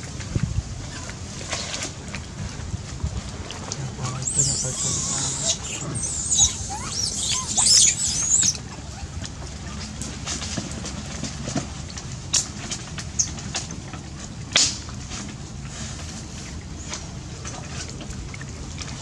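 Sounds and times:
monkeys squealing: 0:03.9 - 0:09.1
brief squeak: 0:04.1 - 0:08.6.

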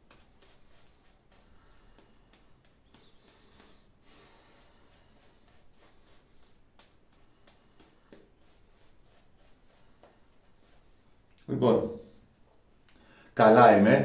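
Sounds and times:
shaving brush scratching lather: 0:00.0 - 0:01.5, 0:02.9 - 0:07.0.

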